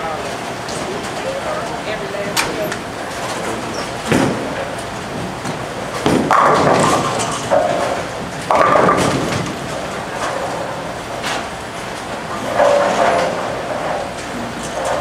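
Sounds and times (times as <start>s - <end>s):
bowling alley rumble and clatter: 0.0s - 15.0s
bowling ball rolling: 2.5s - 15.0s
bowling pins crashing: 3.2s - 10.8s.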